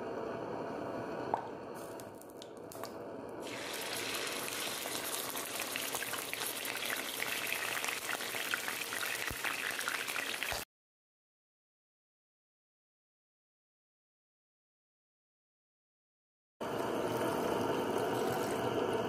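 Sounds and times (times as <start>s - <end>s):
oil sizzling in a frying pan: 2.7s - 10.7s, 16.7s - 19.0s.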